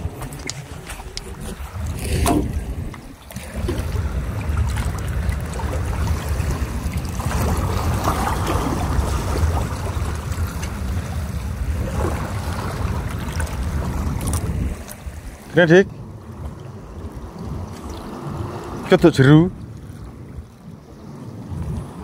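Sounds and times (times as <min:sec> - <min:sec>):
water lapping on shore: 0:00.0 - 0:22.0
wind rumbling on microphone: 0:00.0 - 0:22.0.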